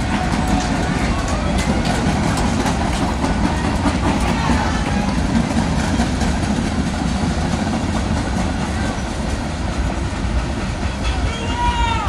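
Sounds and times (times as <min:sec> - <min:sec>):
train wheels rumbling on track: 0:00.0 - 0:12.0.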